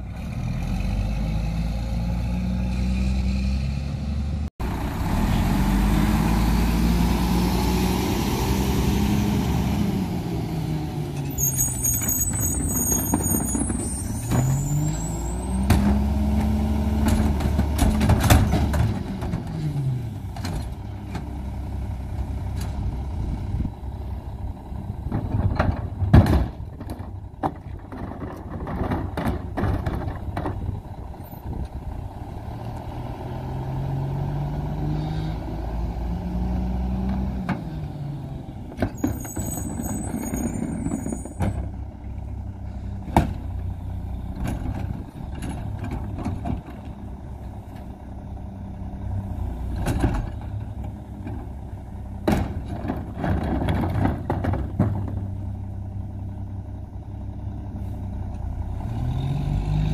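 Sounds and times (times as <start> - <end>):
truck diesel engine running: 4.6 - 11.2
short high brake squeal: 11.2 - 15.6, 39.0 - 41.5.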